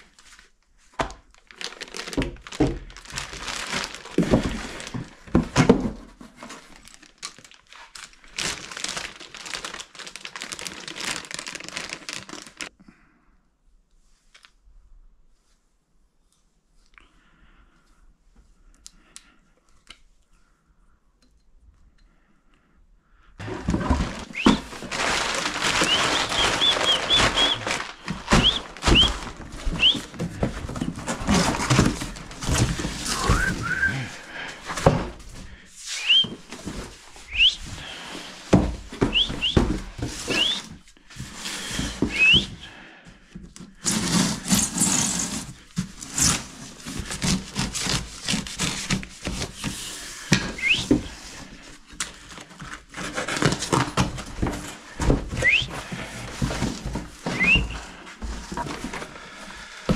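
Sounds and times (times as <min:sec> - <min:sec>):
cardboard box rustling and scraping: 0:02.0 - 0:07.0, 0:23.4 - 0:42.6, 0:43.8 - 0:51.5, 0:52.5 - 0:59.2.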